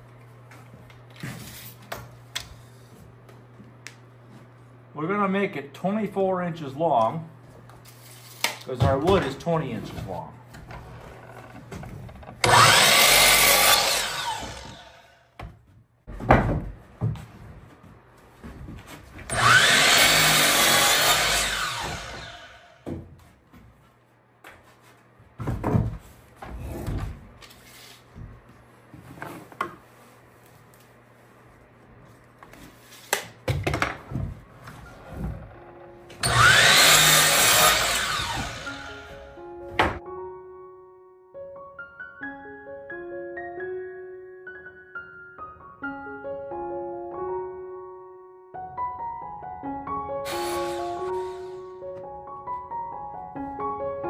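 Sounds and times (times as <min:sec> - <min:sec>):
power saw cutting wood: 0:12.4 - 0:15.1, 0:19.3 - 0:22.8, 0:36.2 - 0:39.2, 0:50.3 - 0:51.7.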